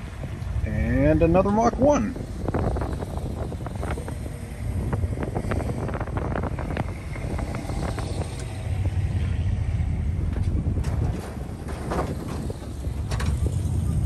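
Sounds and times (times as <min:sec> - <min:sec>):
engine and road rumble: 0:00.0 - 0:14.0
tyre noise on wet road: 0:02.2 - 0:14.0.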